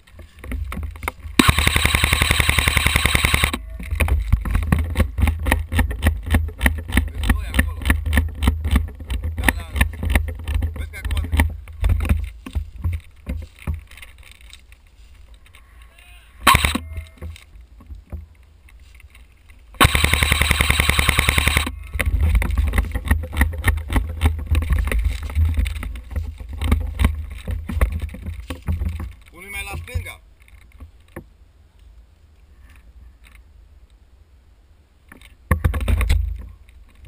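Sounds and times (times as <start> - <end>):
rustling: 0.0 - 33.6
airsoft gun full-auto burst: 1.4 - 3.6, 16.5 - 16.8, 19.8 - 21.7.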